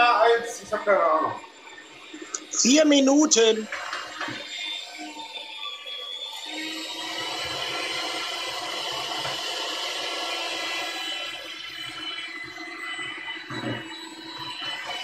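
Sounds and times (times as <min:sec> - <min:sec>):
hand mixer motor running: 0:03.8 - 0:15.0.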